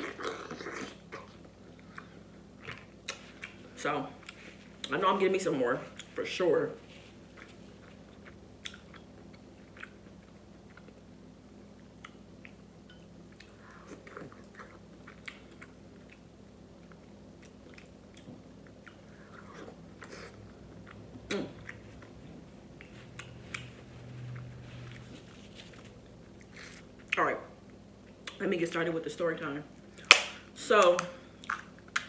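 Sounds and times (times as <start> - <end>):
person chewing: 0.0 - 4.9, 7.2 - 11.0, 11.8 - 12.6, 13.3 - 28.4, 31.2 - 32.0
short low hum: 19.1 - 26.9.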